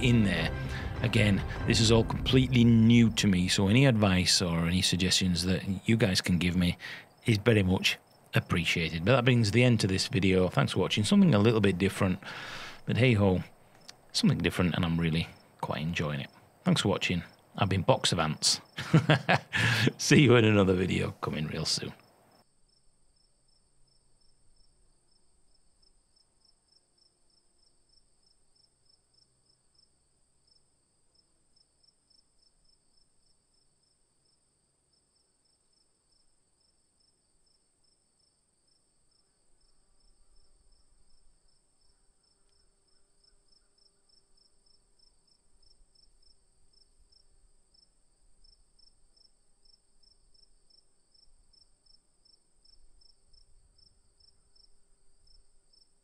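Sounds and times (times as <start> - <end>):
steady high tone: 0.0 - 4.1
faint insect chirping: 2.6 - 56.0.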